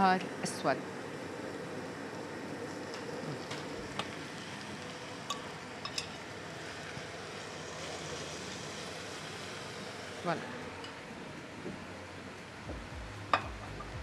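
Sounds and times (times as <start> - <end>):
meat sizzling in a frying pan: 3.4 - 10.2.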